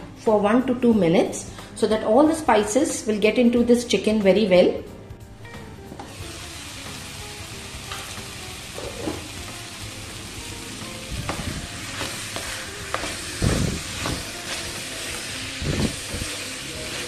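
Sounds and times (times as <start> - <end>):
chicken sizzling in pan: 6.0 - 17.0.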